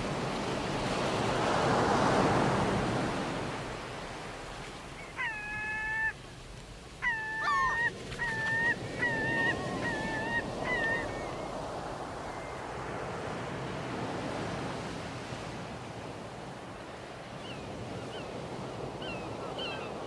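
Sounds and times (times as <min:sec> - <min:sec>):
surf washing on shore: 0:00.0 - 0:20.0
gull calling: 0:05.0 - 0:06.2, 0:07.0 - 0:11.6.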